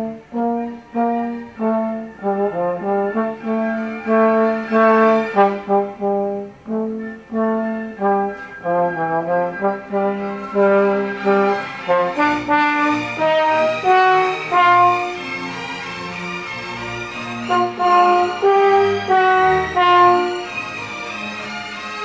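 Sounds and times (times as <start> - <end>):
solo trombone melody: 0.0 - 15.2, 17.4 - 20.5.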